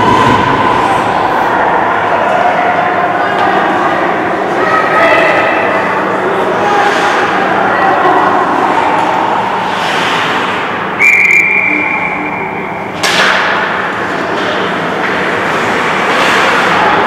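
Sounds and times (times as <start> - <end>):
skates and sticks on ice: 9.0 - 10.8, 13.0 - 17.0
high whistle blast: 11.0 - 12.6.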